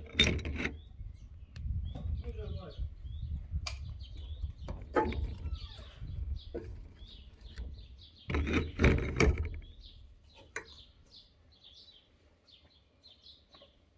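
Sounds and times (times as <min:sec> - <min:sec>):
small birds chirping: 0:00.0 - 0:13.9
sharp knocks and clicks: 0:08.3 - 0:10.8.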